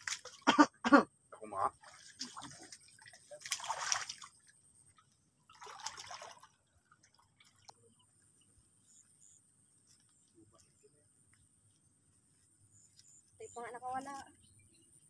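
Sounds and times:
muddy water splashing: 0:00.0 - 0:00.7, 0:01.4 - 0:08.4
faint water drips: 0:01.7 - 0:08.4.

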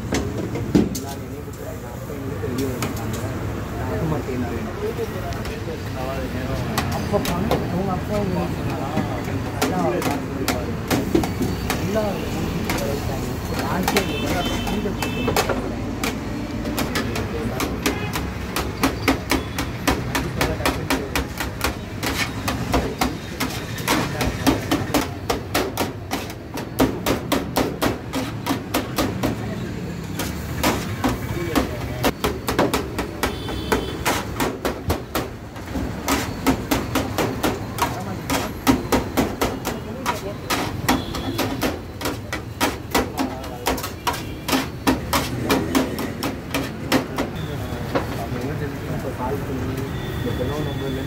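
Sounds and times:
knife chopping chicken: 0:08.9 - 0:29.6, 0:30.2 - 0:47.5.

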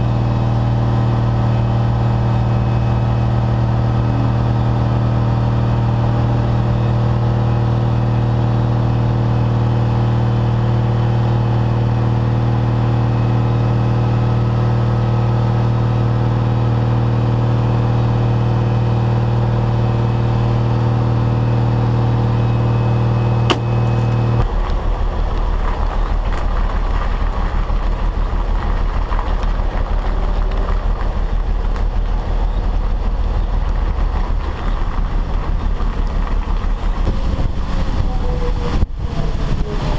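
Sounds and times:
diesel truck engine running: 0:00.0 - 0:39.9
truck rumbling along road: 0:00.0 - 0:39.9
wind on microphone: 0:32.3 - 0:39.9.

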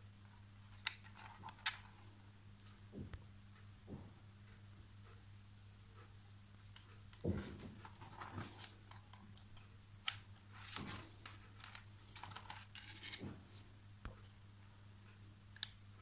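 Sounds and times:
faint low hum: 0:00.0 - 0:16.0
handling rustle: 0:07.2 - 0:09.3, 0:10.4 - 0:13.8.

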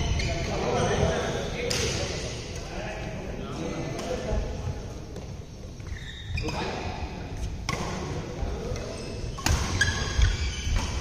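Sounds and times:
rackets hitting shuttlecock: 0:08.8 - 0:11.0.

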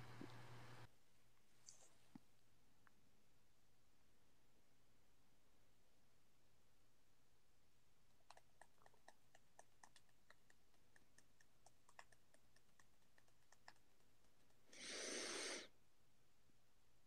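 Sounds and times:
short hiss: 0:14.8 - 0:15.7.

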